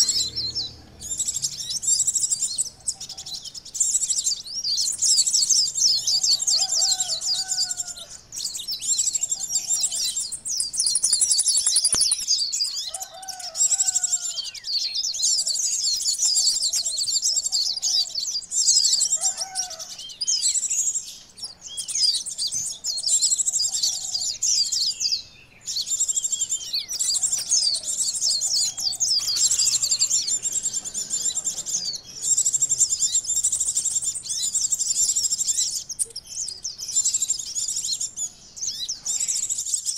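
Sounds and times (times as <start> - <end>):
lower bird notes: 0.0 - 5.8
sunbirds chattering calls: 0.0 - 39.9.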